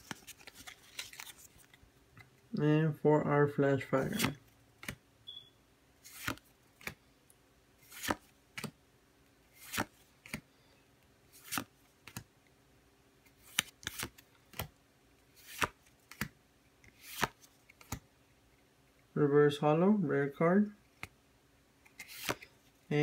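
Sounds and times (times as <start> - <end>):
trading cards sliding off stack: 21.9 - 22.6.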